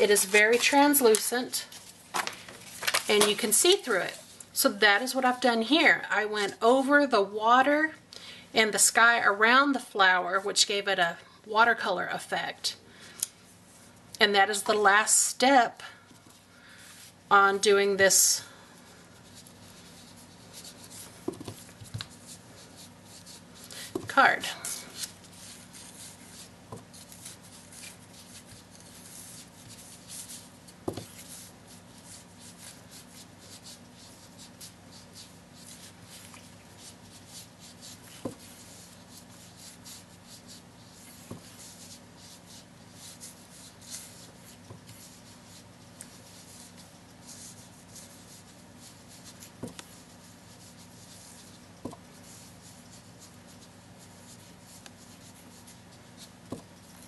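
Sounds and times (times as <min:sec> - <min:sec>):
faint steady hum: 0:00.0 - 0:57.0
sponge rubbing on cardstock: 0:19.1 - 0:57.0.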